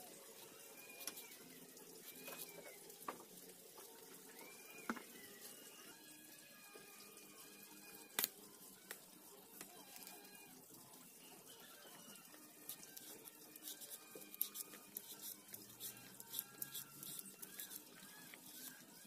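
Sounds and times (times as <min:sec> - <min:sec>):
knife scraping banana peel: 0:12.6 - 0:18.9.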